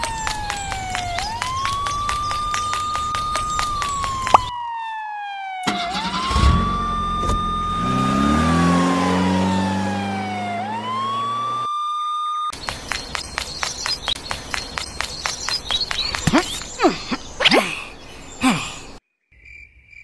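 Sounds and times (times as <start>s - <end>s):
police siren wailing: 0.0s - 12.6s
engine starting and revving: 5.6s - 11.7s.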